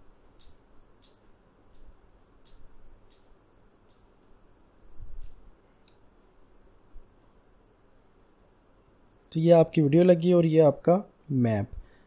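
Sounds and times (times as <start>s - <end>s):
faint high ticks: 0.2s - 4.4s.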